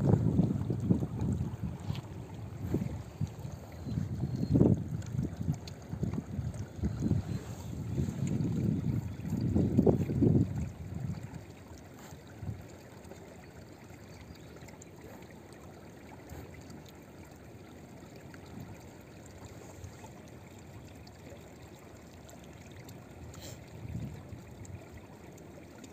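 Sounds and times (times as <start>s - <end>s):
water lapping against posts: 0.0s - 25.9s.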